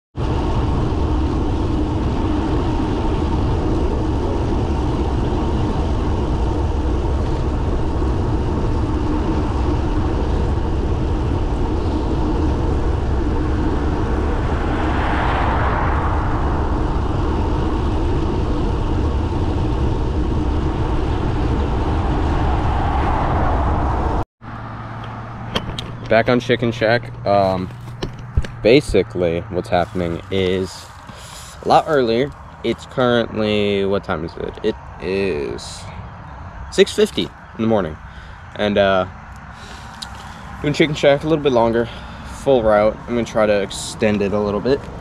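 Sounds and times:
road noise: 0.1 - 45.0
wind rush on microphone: 0.2 - 24.2, 25.1 - 45.0
car passing: 0.2 - 45.0.

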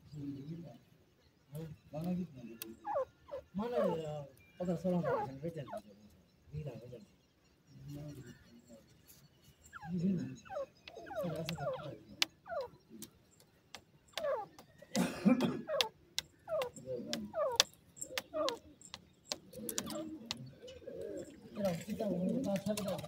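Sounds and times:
sharp ticks: 10.8 - 14.8, 15.7 - 20.5.

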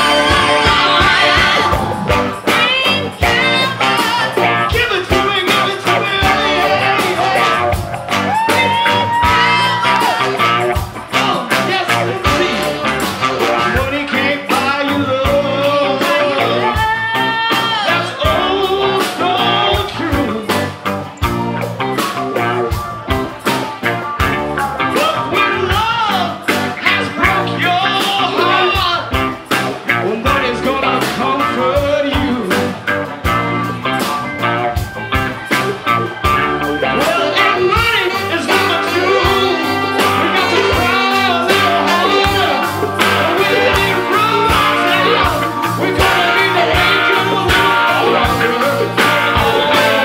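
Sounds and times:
drum beat: 0.0 - 15.4, 37.0 - 50.0
horn section: 0.0 - 20.6, 21.2 - 50.0
electric guitar: 0.0 - 50.0
woman singing: 0.2 - 4.5.

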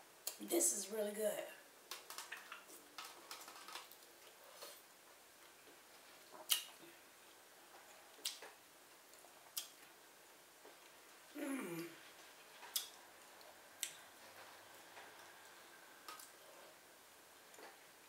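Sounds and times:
quiet chewing: 1.9 - 4.8, 5.4 - 10.0, 11.7 - 16.8.

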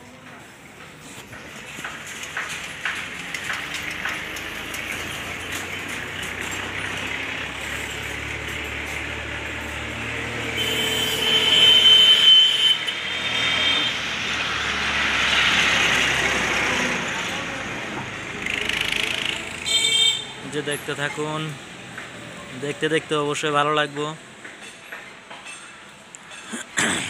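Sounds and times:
motor vehicle passing: 1.0 - 12.2, 12.8 - 20.8.

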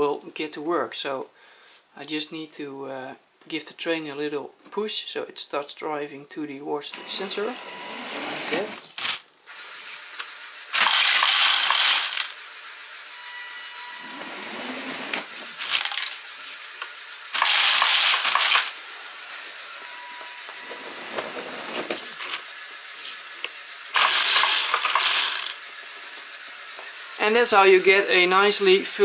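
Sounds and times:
faint mechanical sounds: 5.8 - 29.0
plastic pieces clattering into wagons: 8.6 - 9.2, 10.7 - 12.4, 14.9 - 18.8, 21.1 - 23.2, 24.0 - 25.6.

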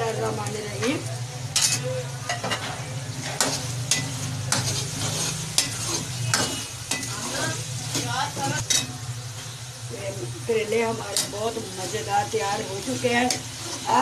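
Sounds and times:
food sizzling: 0.0 - 14.0
metal spoon scraping pan: 1.5 - 9.0, 10.7 - 14.0.

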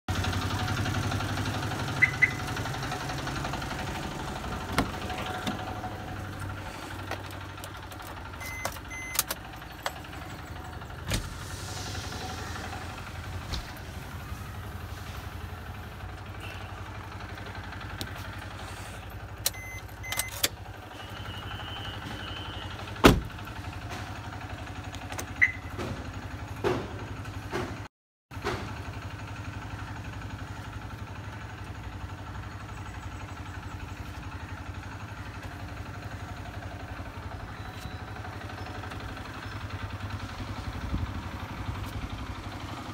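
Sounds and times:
power windows running: 2.2 - 14.4
short beep: 8.4 - 9.3, 19.5 - 20.4.

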